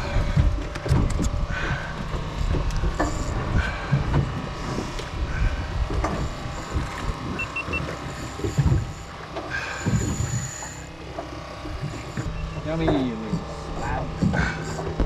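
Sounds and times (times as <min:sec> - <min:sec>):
water slapping against hull: 0:00.0 - 0:15.0
short high beeps: 0:07.4 - 0:07.8.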